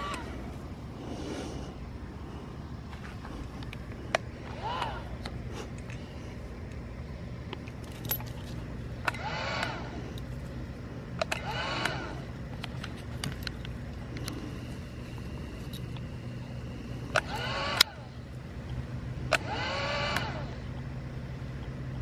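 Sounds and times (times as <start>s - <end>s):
steady low motor hum: 0.0s - 22.0s
sharp clicks: 11.1s - 14.5s, 17.1s - 18.0s, 18.6s - 20.5s.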